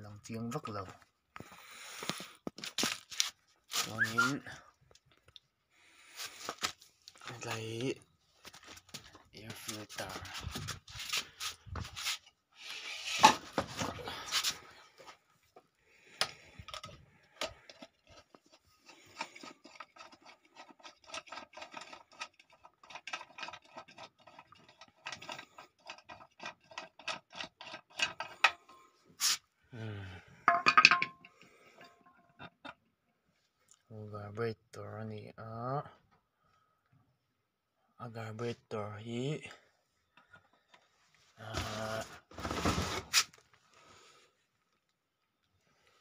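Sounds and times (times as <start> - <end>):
rubbing and scraping plastic cover: 2.0 - 4.4, 8.4 - 14.7, 41.5 - 43.7.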